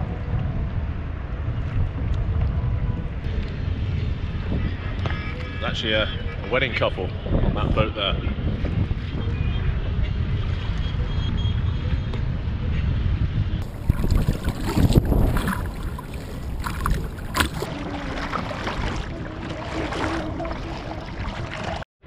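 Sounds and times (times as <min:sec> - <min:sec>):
wind buffeting microphone: 0:06.2 - 0:21.8
paddle strokes splashing water: 0:13.6 - 0:21.8.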